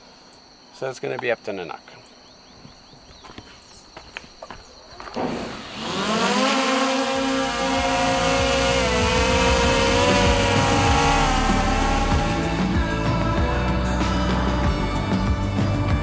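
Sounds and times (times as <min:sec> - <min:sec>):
drone propellers buzzing: 0:05.2 - 0:13.0.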